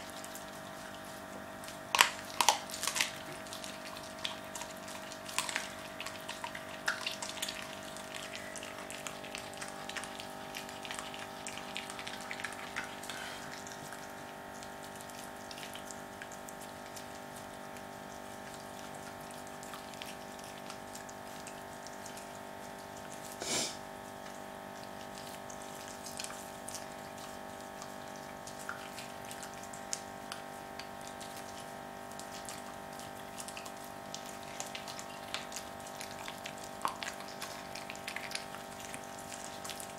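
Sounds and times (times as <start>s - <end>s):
dog chewing with small clicks: 0.0s - 39.9s.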